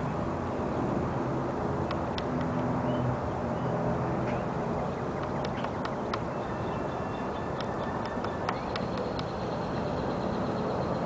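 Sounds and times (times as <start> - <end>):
steady background rush: 0.0 - 11.0
woodpecker tapping on wood: 1.8 - 2.6, 5.2 - 6.5, 7.4 - 9.6.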